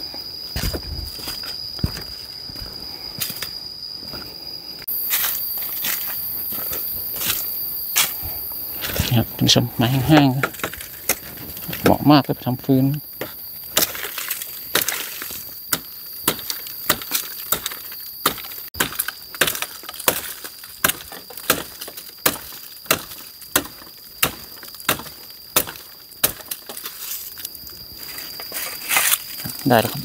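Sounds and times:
wood being chopped: 10.1s - 12.0s, 13.2s - 26.9s.

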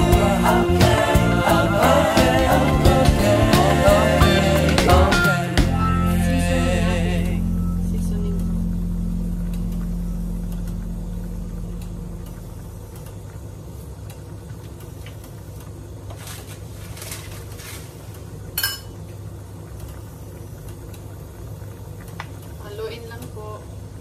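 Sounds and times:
background music: 0.0s - 10.7s
steady low hum: 0.0s - 16.1s
kitchenware clinking: 18.6s - 19.0s.

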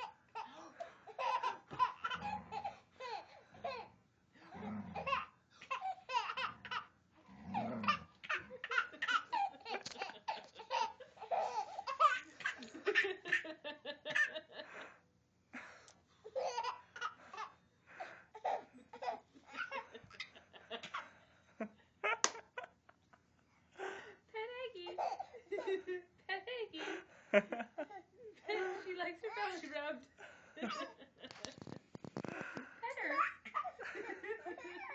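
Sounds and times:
baby laughing: 0.0s - 3.9s, 5.0s - 6.9s, 7.6s - 14.5s, 16.3s - 17.5s, 18.4s - 21.0s, 24.9s - 25.9s, 32.9s - 34.9s.

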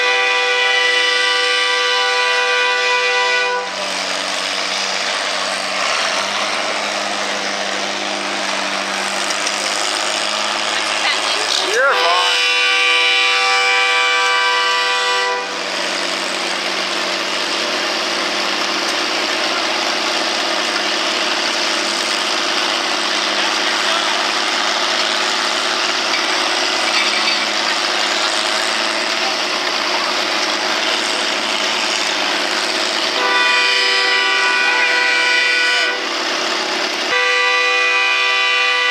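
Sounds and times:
horn-like tone: 0.0s - 3.9s, 11.7s - 15.7s, 33.2s - 36.1s, 37.1s - 38.9s
tractor engines running: 0.0s - 38.9s.

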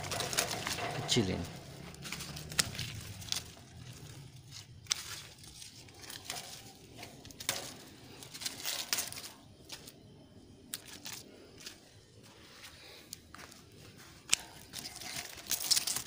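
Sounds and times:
pruning shears snipping: 0.0s - 10.0s, 14.2s - 16.0s
leaves rustling: 0.0s - 16.0s.

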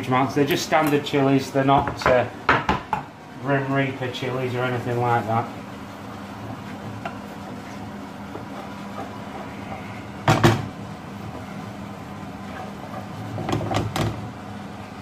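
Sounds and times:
steady low hum: 0.0s - 15.0s
wooden spoon stirring sauce: 4.3s - 13.9s.

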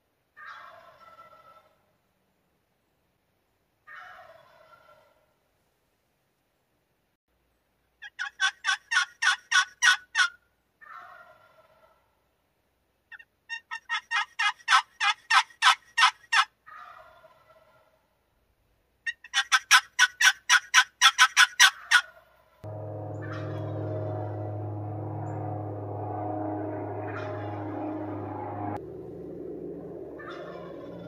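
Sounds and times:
turkey gobbling: 0.4s - 1.7s, 3.9s - 5.1s, 8.0s - 12.0s, 13.5s - 18.0s, 19.1s - 22.3s, 30.2s - 31.0s.

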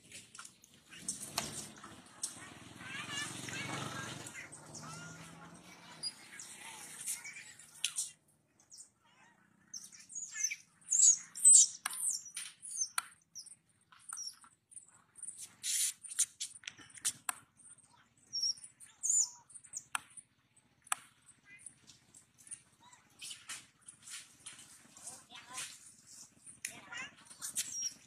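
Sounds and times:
animal squeaks and chirps: 8.7s - 14.4s, 15.2s - 17.2s, 18.3s - 20.0s, 26.9s - 28.0s
sharp clicks: 20.8s - 21.2s.

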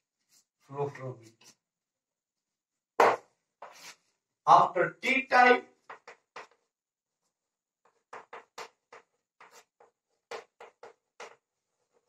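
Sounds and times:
chalk tapping and scraping on blackboard: 3.0s - 4.1s, 5.8s - 6.8s, 7.8s - 12.0s.

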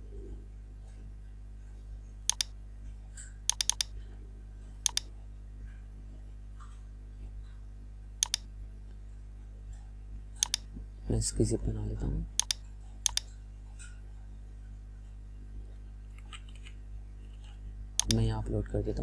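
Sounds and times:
steady low hum: 0.0s - 19.0s
mouse buttons clicking: 2.3s - 2.5s, 3.5s - 4.0s, 4.8s - 5.1s, 8.2s - 8.5s, 10.4s - 10.7s, 12.4s - 13.3s, 18.0s - 18.3s.

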